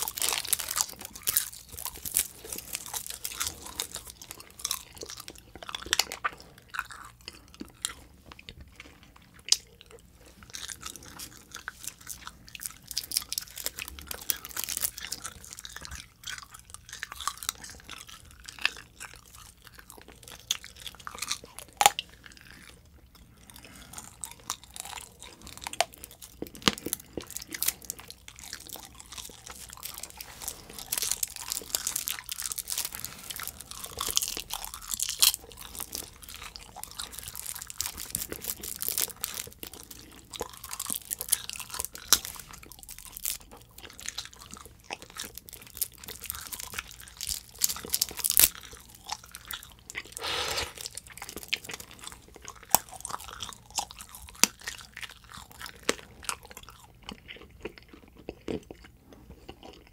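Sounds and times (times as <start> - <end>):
chewing candy: 0.0 - 59.9.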